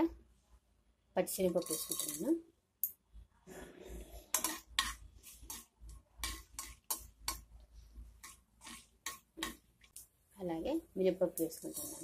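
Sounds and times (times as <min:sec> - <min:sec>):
spoon scraping and clinking a pan: 0:01.4 - 0:02.4, 0:04.2 - 0:07.5, 0:08.2 - 0:09.6.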